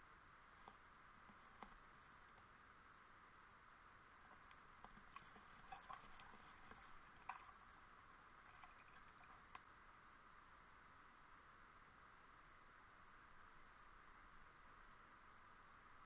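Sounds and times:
faint underwater hiss: 0.0 - 16.0
small underwater clicks: 4.1 - 9.7.

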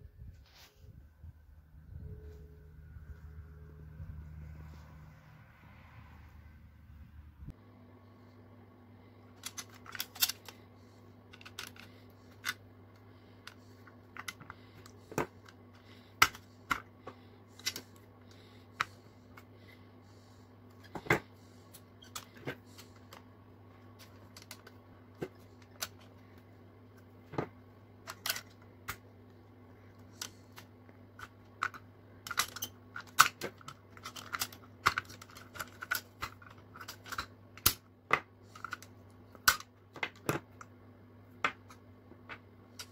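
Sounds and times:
steady low hum: 0.0 - 42.9.

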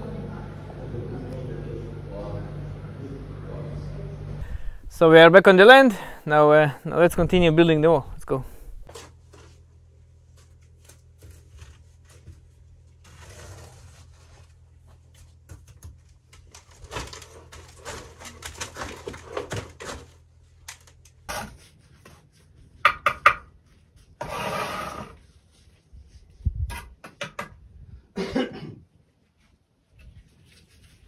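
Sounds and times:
low steady hum: 0.0 - 22.8
trowel scraping mortar: 13.0 - 14.6, 24.2 - 25.2.

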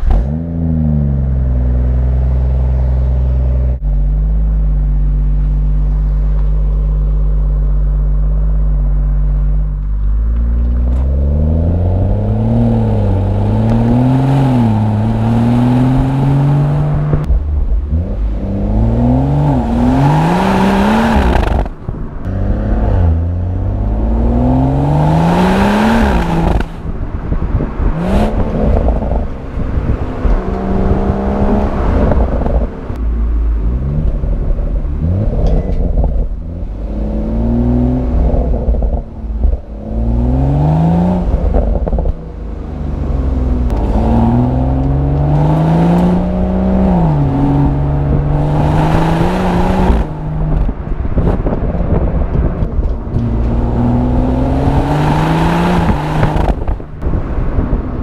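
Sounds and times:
car engine idling: 0.0 - 24.9
car engine accelerating: 0.0 - 58.0.

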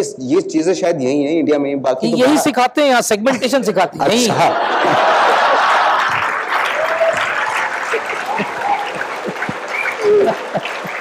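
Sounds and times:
audience applauding: 4.6 - 11.0
scattered laughter: 7.9 - 11.0.

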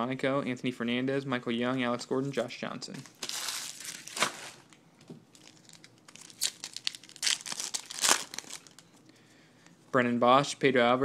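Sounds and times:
foil wrapper crinkling and tearing: 3.0 - 8.9.

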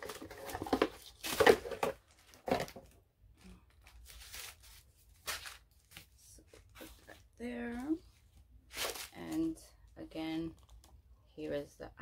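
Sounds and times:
paper and cardboard packaging rustling: 0.0 - 3.0, 3.7 - 9.6.

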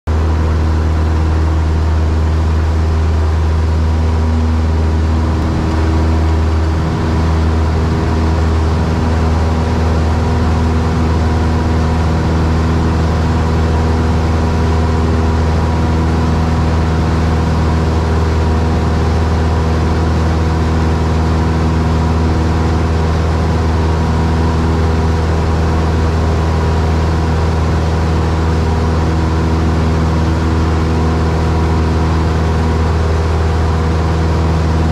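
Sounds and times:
aircraft engine and propeller drone: 0.1 - 34.9.

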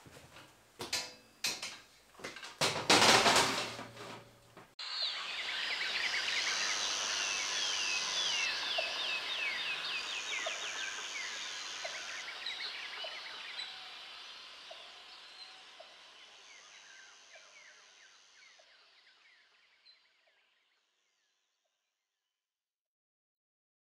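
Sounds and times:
birds chirping: 4.8 - 20.6
steady high hiss: 4.8 - 20.6.

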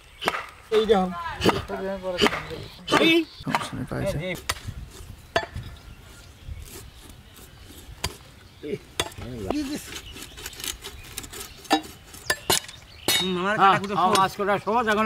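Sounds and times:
cleavers chopping fish on wood: 0.2 - 0.5, 1.4 - 3.8.

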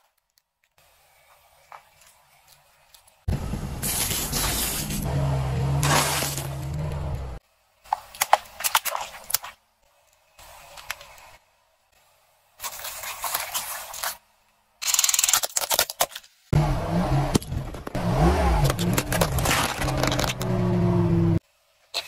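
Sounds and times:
car engine hum: 3.3 - 7.4, 16.6 - 21.4
tyre crushing objects: 5.8 - 6.6.

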